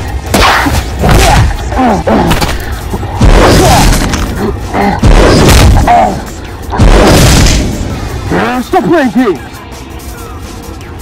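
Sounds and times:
background music: 0.0 - 11.0
punch thuds and booms: 5.0 - 5.9, 6.8 - 7.8.

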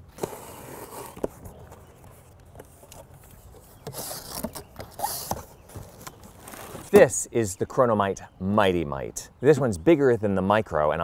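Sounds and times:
cardboard rustling and scraping: 0.0 - 7.1.

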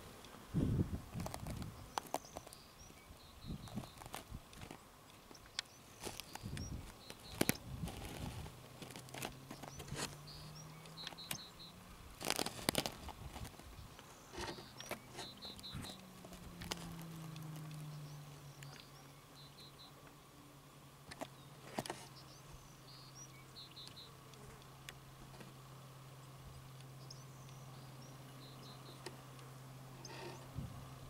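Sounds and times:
sharp clicks and rustles: 1.1 - 2.6, 3.6 - 11.6, 12.2 - 18.0, 21.0 - 22.2.

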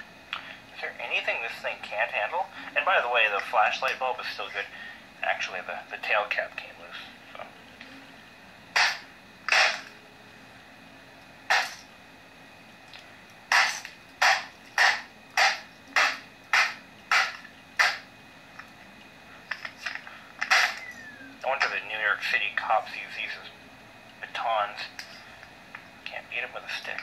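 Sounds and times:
flashlight hitting laptop: 8.8 - 9.8, 13.5 - 18.0.

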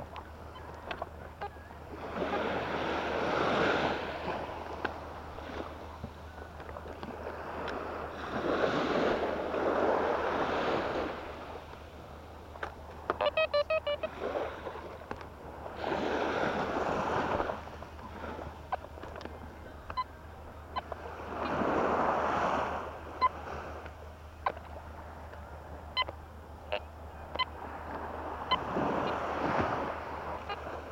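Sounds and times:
sea waves washing onto beach: 0.0 - 30.9
metal detector beeps: 13.2 - 14.2, 19.7 - 21.6, 25.9 - 27.6.

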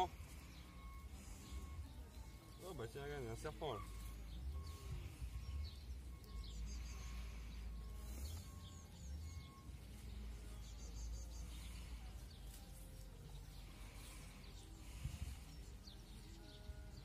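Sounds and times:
birds chirping: 0.0 - 17.0.

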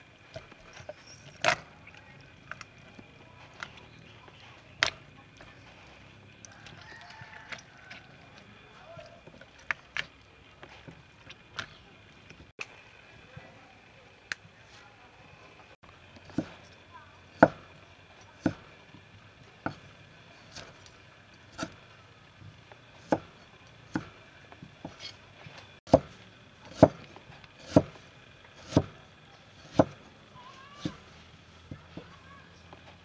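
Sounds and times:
cleaver chopping on wooden block: 17.4 - 17.7, 18.4 - 18.6, 21.5 - 21.8, 23.0 - 23.3, 23.9 - 24.2, 25.9 - 27.0, 27.6 - 28.0, 28.6 - 29.0, 29.6 - 30.0, 30.8 - 31.0.

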